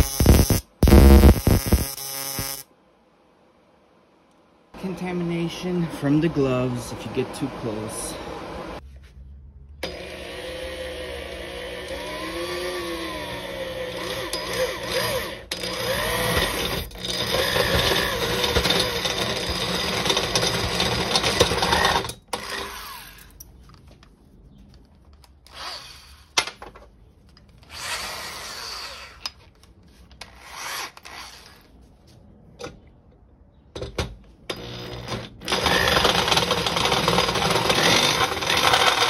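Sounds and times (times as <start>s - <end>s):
electric drill cutting into metal: 0.0s - 2.7s, 9.8s - 23.3s, 25.5s - 26.3s, 30.2s - 31.6s, 34.5s - 39.0s.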